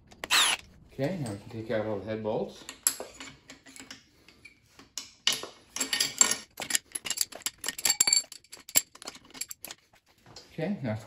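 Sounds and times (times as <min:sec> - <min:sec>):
metal bolts clinking: 0:05.3 - 0:09.8.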